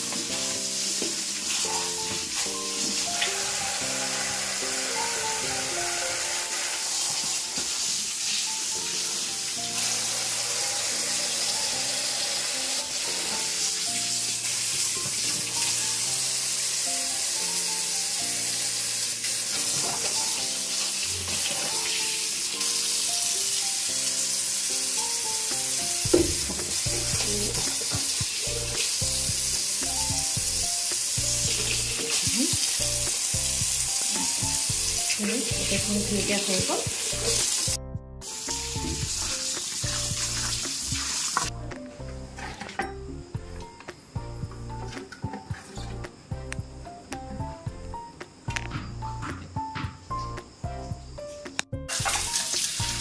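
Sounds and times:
background music: 0.0 - 53.0
tap water running: 0.0 - 53.0
knock: 26.1 - 26.8.

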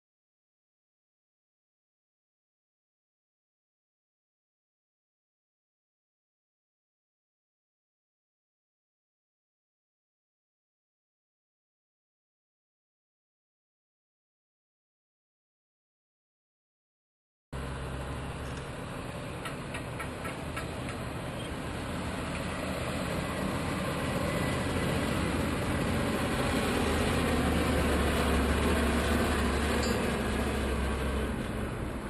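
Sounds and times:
dump truck diesel engine: 17.6 - 32.0.

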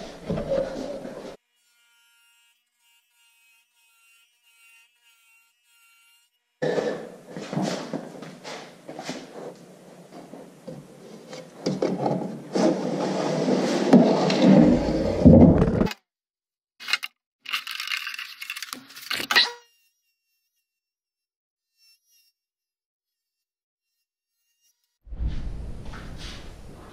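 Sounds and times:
plywood scraping on workbench: 6.6 - 15.9
board sliding along saw fence: 11.0 - 15.9.

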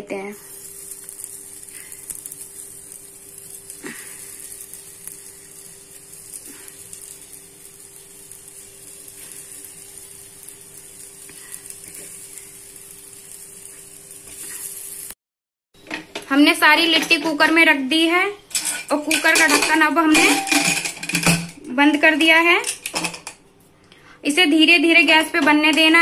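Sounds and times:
oil sizzling in a pot: 0.0 - 15.2, 16.4 - 23.4.

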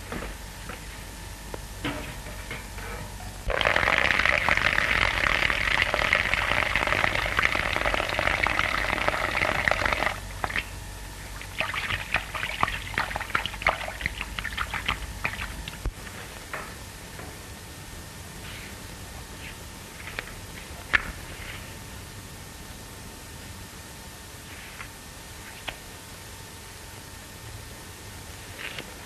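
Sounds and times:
liquid dripping: 11.4 - 15.9.

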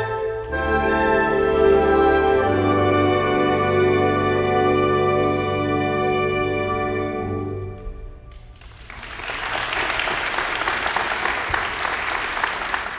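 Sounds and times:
audience applause: 8.5 - 12.9.

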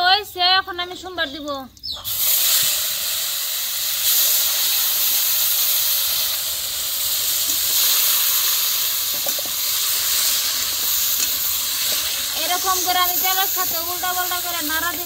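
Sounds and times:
vegetables sizzling in hot oil: 2.0 - 15.0.

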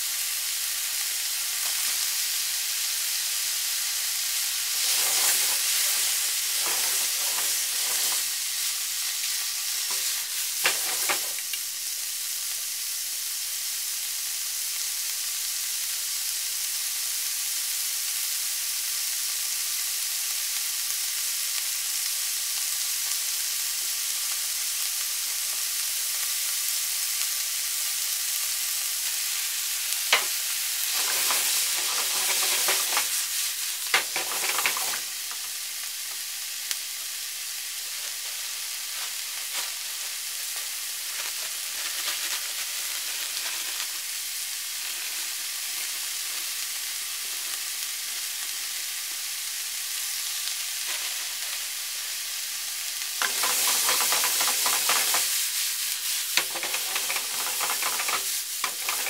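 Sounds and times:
food sizzling in hot oil: 0.0 - 59.0
utensil scraping and clicking in pan: 4.7 - 11.7, 30.0 - 35.6, 37.9 - 44.1, 53.2 - 59.0.

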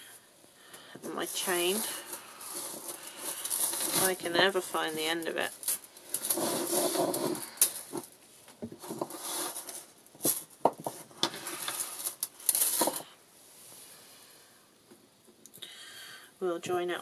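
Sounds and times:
metal chain rustling and clinking: 5.4 - 8.2, 11.4 - 13.1.

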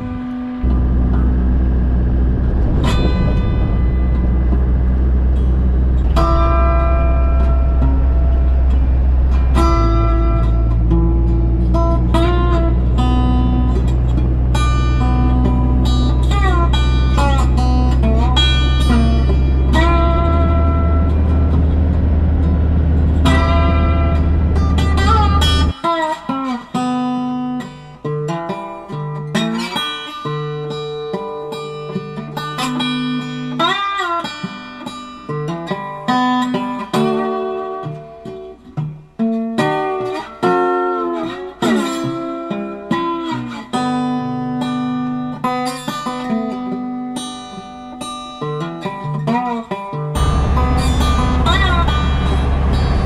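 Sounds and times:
low vehicle rumble: 0.0 - 25.7, 50.2 - 53.0
bluesy acoustic guitar: 0.0 - 53.0.

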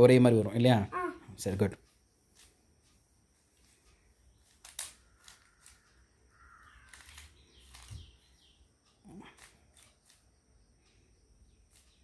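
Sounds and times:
puzzle cube layers clicking: 4.4 - 6.0.

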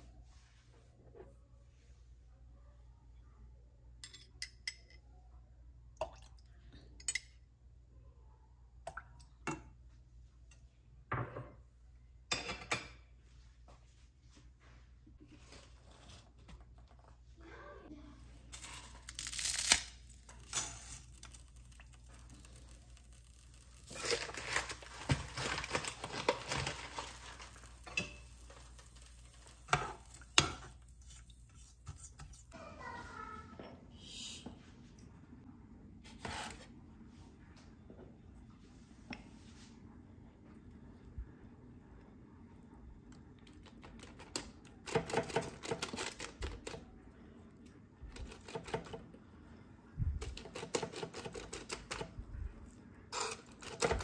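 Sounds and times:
dishes and utensils clinking: 12.3 - 13.1.

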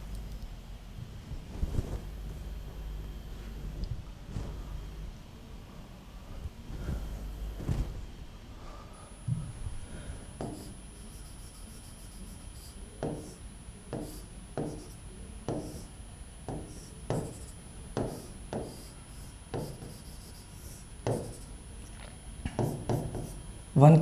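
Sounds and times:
marker pen on whiteboard: 10.4 - 21.5, 22.5 - 23.4.

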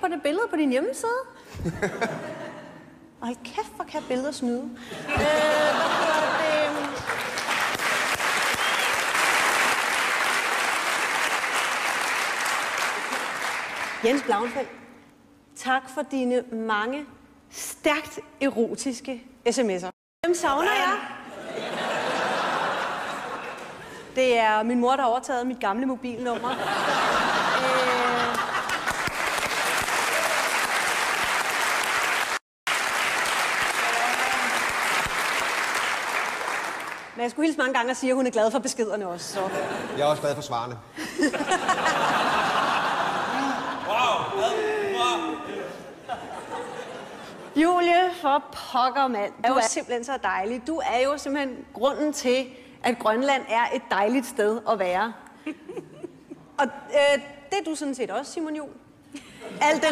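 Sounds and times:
audience applauding: 6.0 - 14.7, 27.8 - 37.2.

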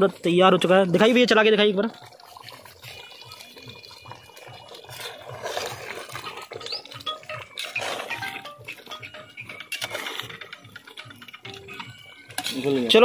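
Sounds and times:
ladle scraping a pot: 4.8 - 12.9
background music with steady beat: 6.8 - 13.0.

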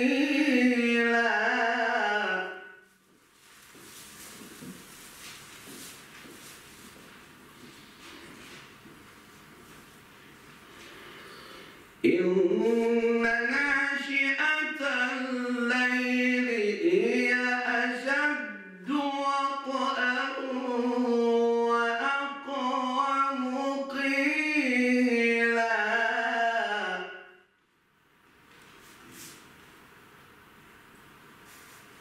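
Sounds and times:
man chanting melodically: 12.0 - 27.2.

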